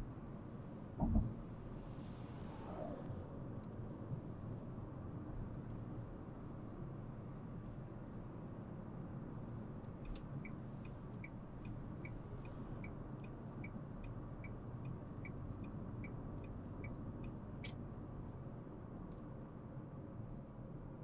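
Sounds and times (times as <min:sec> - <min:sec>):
car road and engine noise: 0:00.0 - 0:21.0
turn signal ticking: 0:09.9 - 0:17.8.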